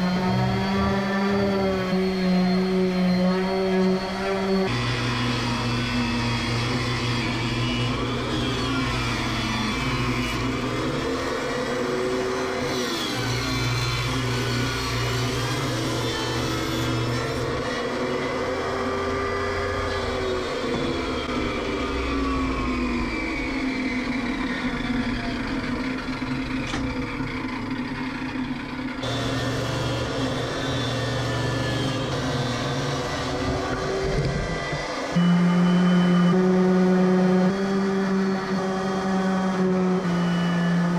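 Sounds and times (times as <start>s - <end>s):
table saw cutting wood: 0.0s - 40.9s.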